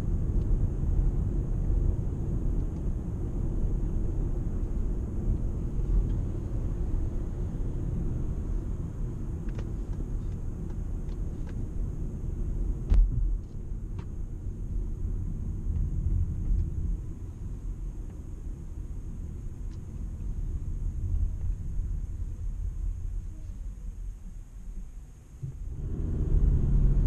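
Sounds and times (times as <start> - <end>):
car road rumble: 0.0 - 27.0
sharp thump: 12.9 - 13.3.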